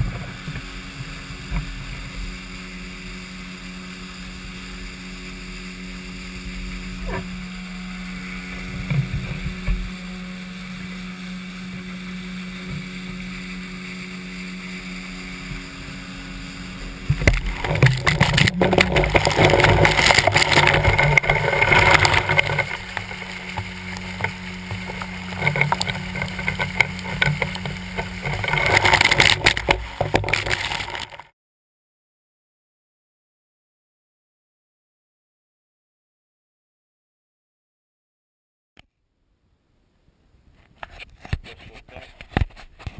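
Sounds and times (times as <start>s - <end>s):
outboard motor running: 0.0s - 31.3s
rushing splashing water: 16.8s - 31.3s.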